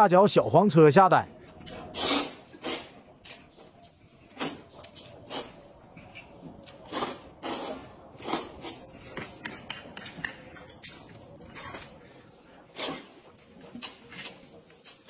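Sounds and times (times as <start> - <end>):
quiet eating noises: 1.3 - 15.0
noodles being slurped: 1.9 - 3.0, 4.4 - 5.6, 6.7 - 8.9.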